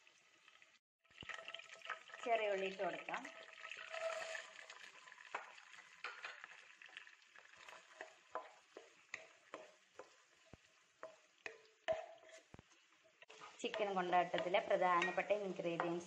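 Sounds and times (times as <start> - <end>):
faint frying sizzle: 0.0 - 16.0
spatula tapping and scraping pan: 5.3 - 6.5, 7.5 - 16.0.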